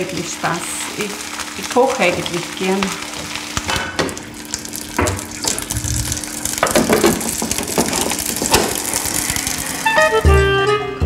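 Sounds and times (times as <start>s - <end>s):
stovetop cooking hiss: 0.0s - 10.3s
utensils knocking and scraping in pan: 4.9s - 9.7s.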